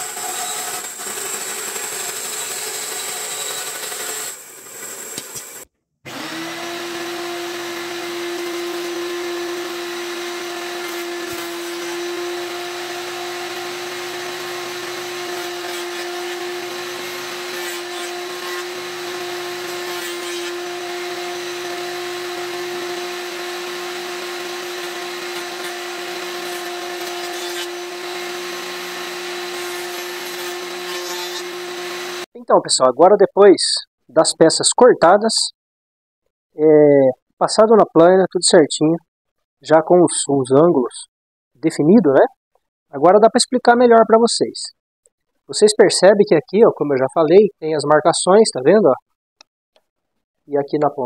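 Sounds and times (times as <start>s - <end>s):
power saw running: 0.0s - 32.3s.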